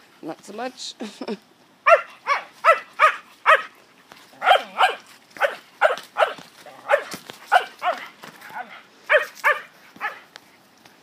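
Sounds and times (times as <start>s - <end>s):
dog barking sharply: 1.8s - 3.7s, 4.4s - 10.2s.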